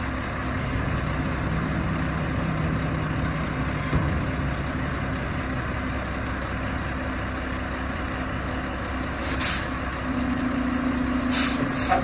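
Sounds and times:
garbage truck diesel engine: 0:00.0 - 0:12.0
air hiss: 0:11.3 - 0:12.0.

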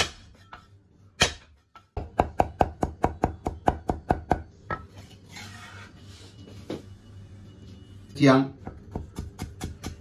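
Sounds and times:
soft scraping: 0:04.9 - 0:06.7.

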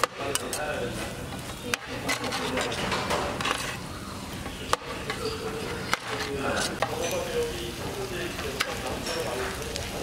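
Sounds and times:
metal spatula scraping a griddle: 0:01.8 - 0:03.9, 0:04.7 - 0:07.3.

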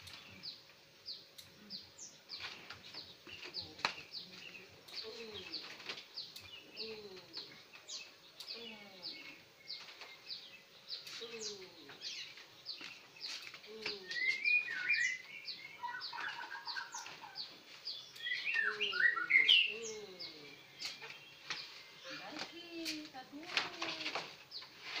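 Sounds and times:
small birds chirping: 0:00.0 - 0:25.0
low falling coos: 0:13.6 - 0:14.4, 0:18.6 - 0:20.6.

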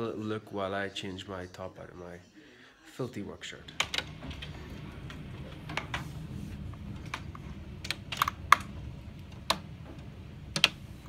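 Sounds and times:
low steady rain rumble: 0:03.6 - 0:11.0
rain taps: 0:03.6 - 0:11.0.

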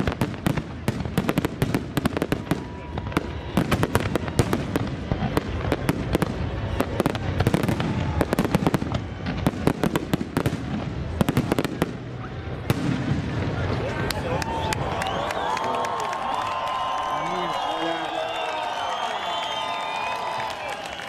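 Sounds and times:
fireworks bangs: 0:00.0 - 0:15.0.

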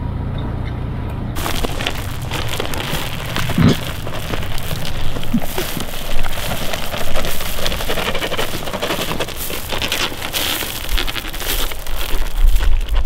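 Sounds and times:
corn kernels pattering on ground: 0:01.4 - 0:13.0.

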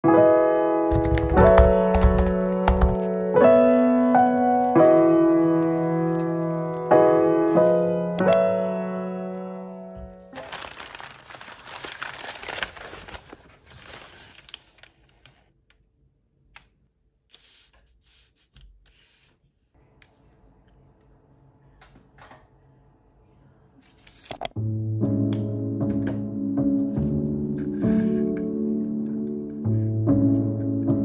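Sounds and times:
piano notes ringing: 0:00.0 - 0:12.2, 0:24.6 - 0:31.0
paper crinkling and rustling: 0:04.3 - 0:07.8, 0:10.0 - 0:15.5.

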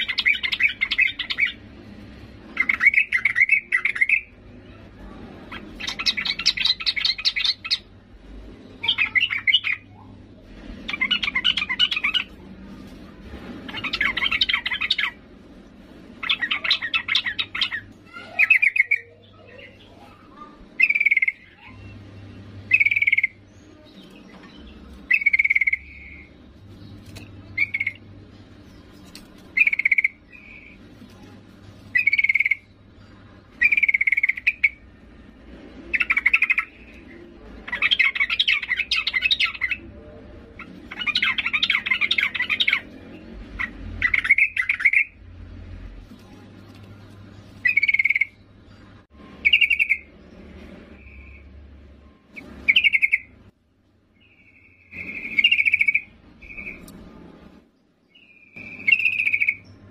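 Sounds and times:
bird chattering calls: 0:00.0 - 0:01.6, 0:05.5 - 0:07.9, 0:08.8 - 0:12.4, 0:13.7 - 0:15.2, 0:16.2 - 0:22.0, 0:22.6 - 0:23.4, 0:24.1 - 0:26.3, 0:29.5 - 0:30.8, 0:31.9 - 0:32.8, 0:33.5 - 0:34.9, 0:40.5 - 0:45.2, 0:47.6 - 0:48.4, 0:49.4 - 0:50.1, 0:52.4 - 0:53.4, 0:54.2 - 0:56.9, 0:58.2 - 0:59.9
clear bird calls: 0:00.0 - 0:59.9.

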